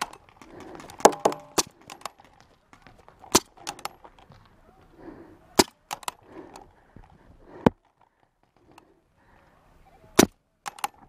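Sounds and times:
paintball marker firing pops: 10.2 - 11.0.

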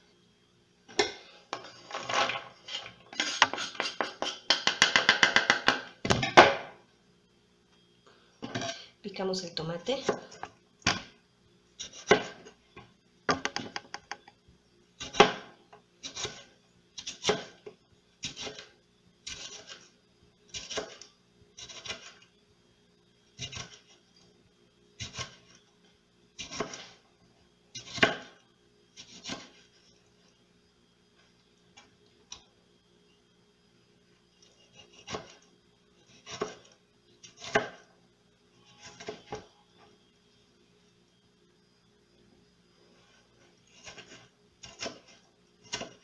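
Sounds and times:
knife slicing tomato on board: 11.8 - 12.5, 15.0 - 17.6, 18.2 - 18.7, 19.3 - 19.9, 20.5 - 21.0, 21.6 - 22.2, 23.4 - 23.9, 26.4 - 27.0, 27.8 - 28.4, 29.0 - 29.6, 36.1 - 37.8, 43.7 - 46.0.

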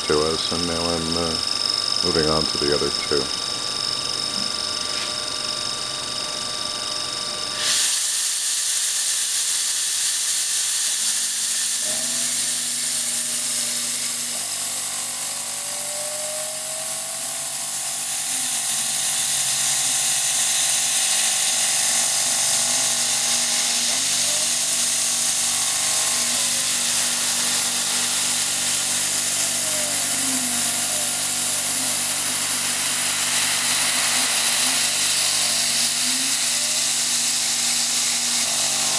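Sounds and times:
milling machine cutting metal: 0.0 - 38.9
hiss of coolant spray: 7.6 - 13.0
machine hum: 9.8 - 38.9
whines gliding in pitch: 11.8 - 38.9.

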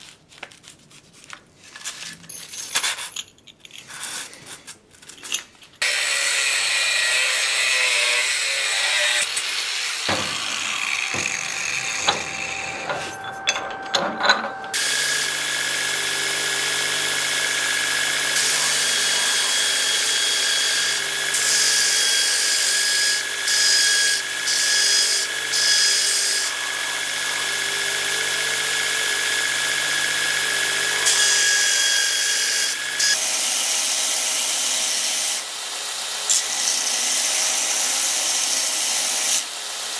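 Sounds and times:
belt grinder grinding steel: 5.8 - 33.2
angle grinder cutting steel: 5.8 - 33.8.

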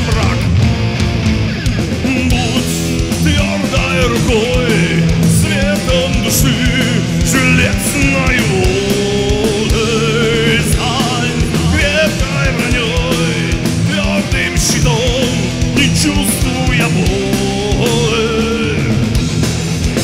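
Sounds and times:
heavy metal band playing: 0.0 - 20.0
wavering lead guitar line: 0.0 - 20.0.

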